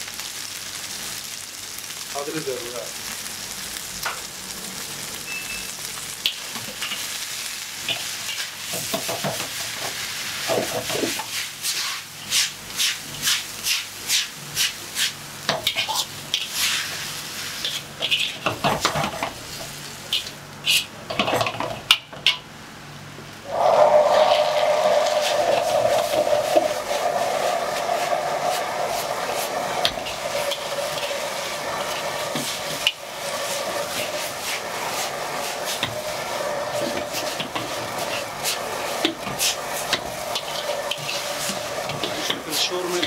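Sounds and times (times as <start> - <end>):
noodles sizzling in a wok: 0.0 - 43.0
spatula scraping a wok: 7.9 - 20.9, 23.5 - 43.0.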